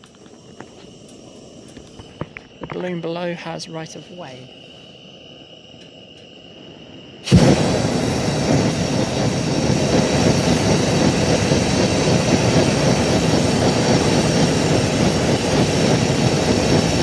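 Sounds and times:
propane burner firing: 0.0 - 17.0.

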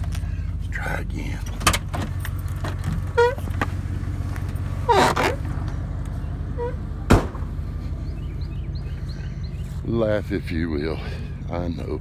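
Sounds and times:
truck engine idling: 0.0 - 12.0
drawn-out creak: 1.4 - 5.8
short squeaks: 3.0 - 3.6, 4.8 - 5.5, 6.5 - 6.9.

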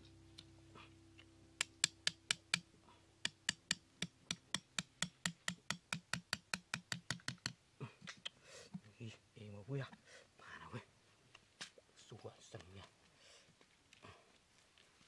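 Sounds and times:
rapid hammer taps: 1.6 - 7.6.

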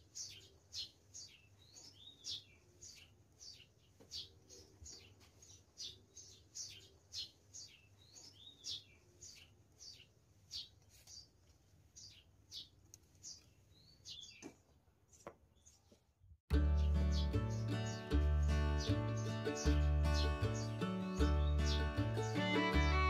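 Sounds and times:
faint birds chirping: 0.0 - 23.0.

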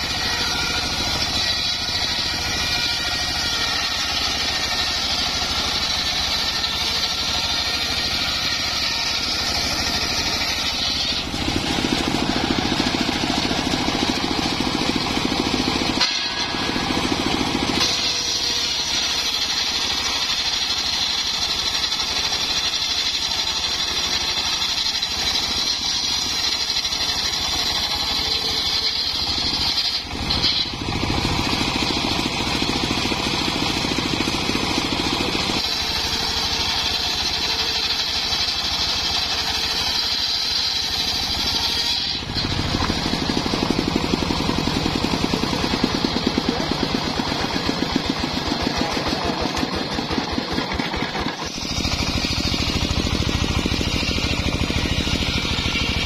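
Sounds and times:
engine-driven circular saw ripping planks: 0.0 - 56.0.

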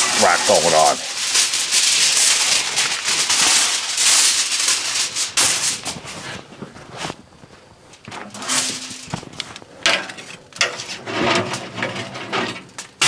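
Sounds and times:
ribs sizzling on a grill: 0.0 - 6.3.

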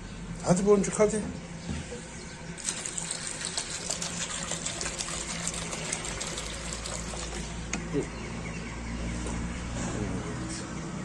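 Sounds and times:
water pouring into a dish: 2.6 - 7.6.

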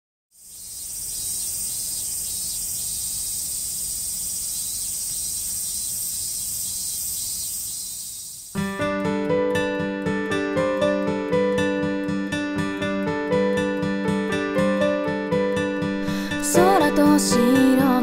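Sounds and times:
insects chirring: 0.3 - 8.6.

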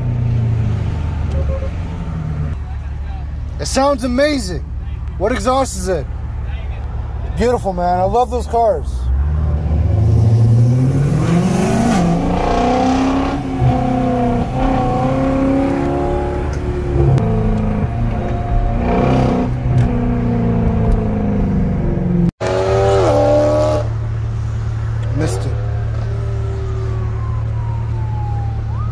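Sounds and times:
car engine revving: 9.0 - 28.2.

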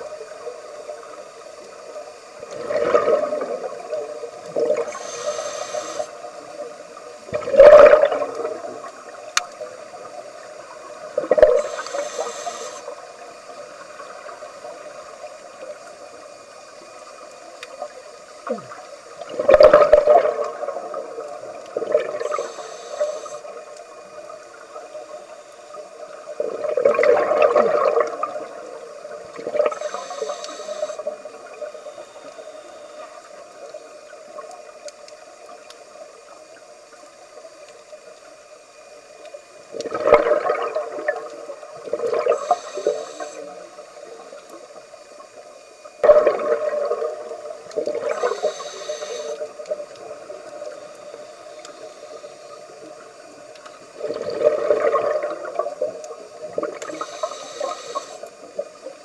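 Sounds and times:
bubbling exhaled air: 2.5 - 6.1, 7.3 - 8.7, 18.5 - 23.5, 26.4 - 28.5, 39.8 - 43.4, 46.0 - 49.5, 53.9 - 55.8
hissing regulator inhalations: 4.7 - 6.4, 11.4 - 13.2, 22.1 - 23.7, 29.6 - 33.2, 42.2 - 43.5, 47.9 - 49.6, 56.7 - 58.4.

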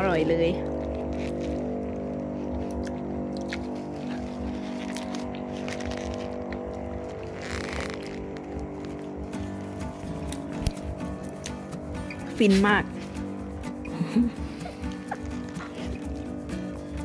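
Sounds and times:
engine-like hum: 0.0 - 17.0
plastic bag crinkling: 0.5 - 9.6.

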